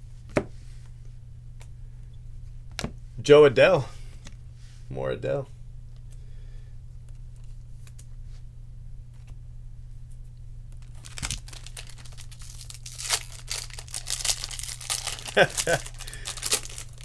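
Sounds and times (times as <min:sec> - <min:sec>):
steady low hum: 0:00.0 - 0:17.0
foil wrapper crinkling and tearing: 0:10.8 - 0:17.0.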